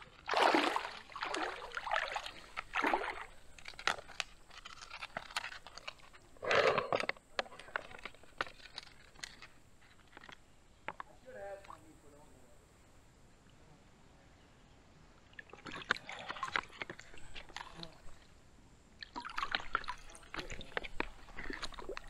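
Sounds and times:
water swishing and sloshing: 0.0s - 6.4s, 15.3s - 18.4s, 19.0s - 22.0s.

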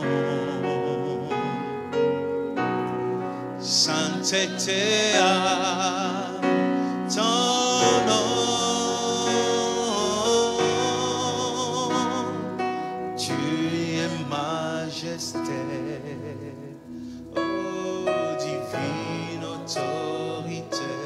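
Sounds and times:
instrumental backing: 0.0s - 21.0s
voices singing with vibrato: 0.0s - 21.0s.

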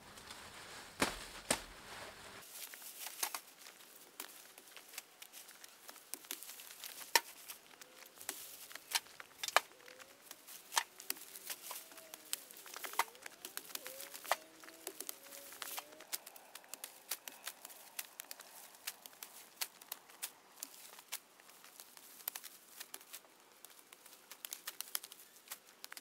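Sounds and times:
dry maize stalks rustling: 0.0s - 26.0s
faint bird calls: 7.3s - 19.6s.

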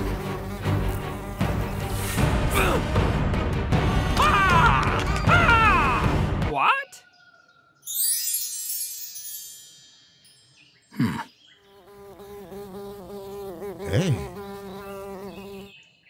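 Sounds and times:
cartoon bee buzzing: 0.0s - 2.2s, 11.1s - 15.7s
twinkling chime: 7.8s - 10.9s.

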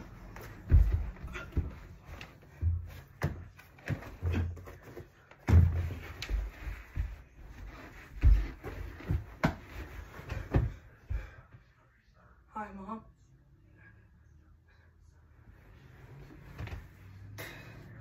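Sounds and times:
dull thumps and scuffing: 0.2s - 11.3s.

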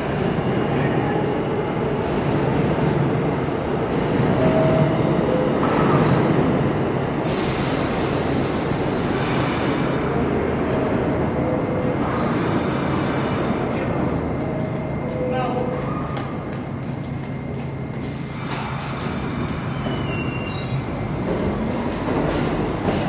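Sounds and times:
subway train rumbling: 0.0s - 23.0s
short high brake squeals: 18.7s - 20.9s.

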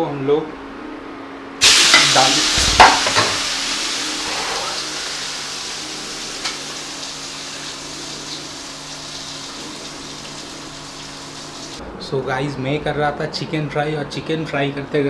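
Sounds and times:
chicken sizzling in hot oil: 1.6s - 11.8s.

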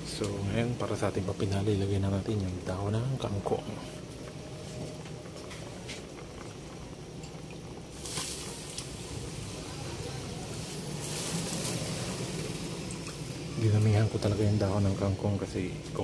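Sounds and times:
broth bubbling: 0.0s - 16.0s
hiss of leaves in pot: 7.9s - 15.4s.

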